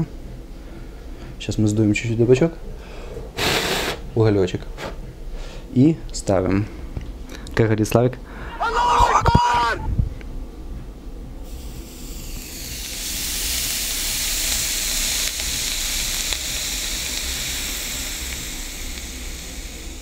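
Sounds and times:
tobacco sizzling under hot coal: 11.4s - 20.0s.

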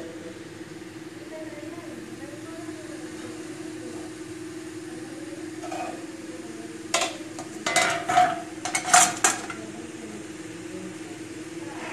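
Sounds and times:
steady low hum: 0.0s - 11.9s
metal spoon clinking against pot: 5.6s - 6.0s, 7.0s - 9.6s.

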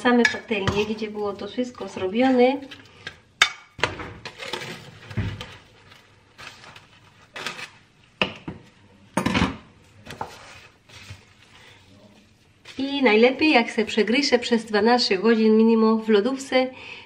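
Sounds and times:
plastic cling film crinkling: 4.3s - 7.9s, 10.4s - 14.0s
dishes knocking and clinking: 8.2s - 10.3s.

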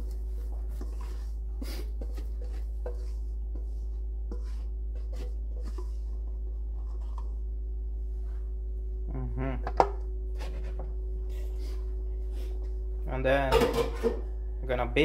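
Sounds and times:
whisk scraping metal bowl: 0.0s - 7.3s
steady low hum: 0.0s - 15.0s.

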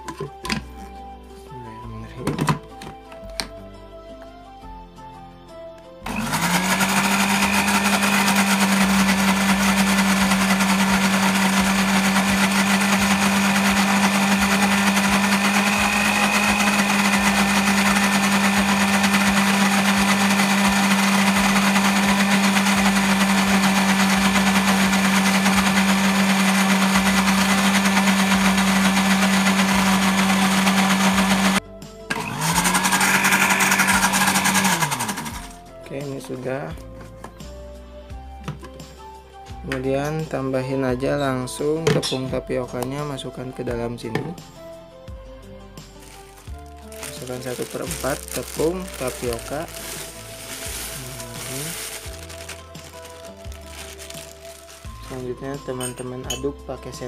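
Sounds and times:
blender motor grinding: 6.0s - 35.6s, 46.0s - 55.4s.

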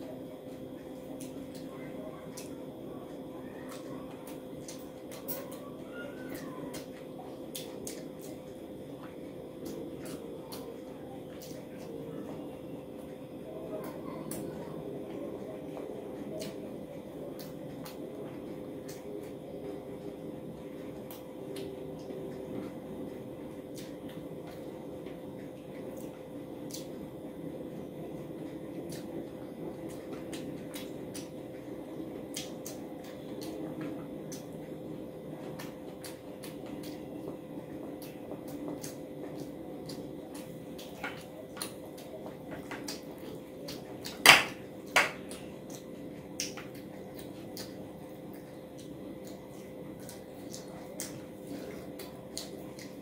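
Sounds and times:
steady background hum: 0.0s - 53.0s
person chewing: 45.2s - 53.0s.

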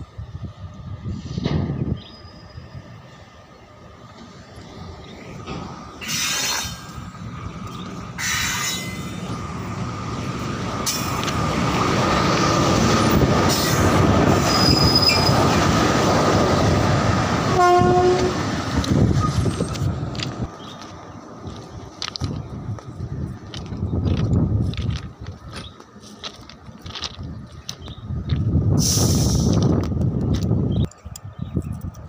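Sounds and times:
locomotive wheels rumbling on rails: 0.0s - 32.0s
high wheel squeal: 6.0s - 6.9s, 8.2s - 9.2s, 13.5s - 15.4s
locomotive horn note: 17.5s - 18.4s.

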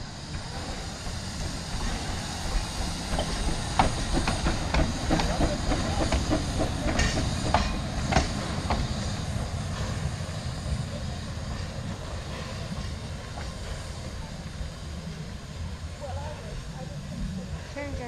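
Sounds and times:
steam hiss: 0.0s - 18.0s
steam locomotive rumble: 0.0s - 18.0s
sharp train clicks: 0.2s - 10.1s.

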